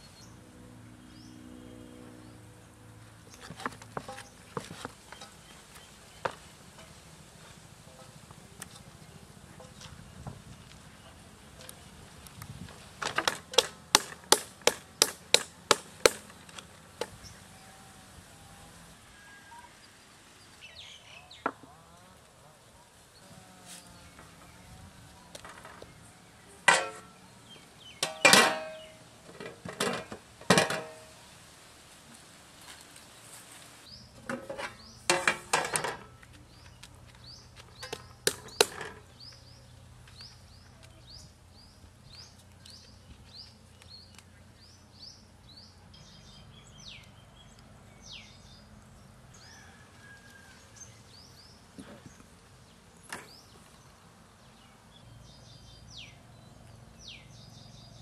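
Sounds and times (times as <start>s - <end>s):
metal cooking utensils clanking: 26.6s - 27.2s, 28.0s - 31.1s, 34.2s - 36.1s.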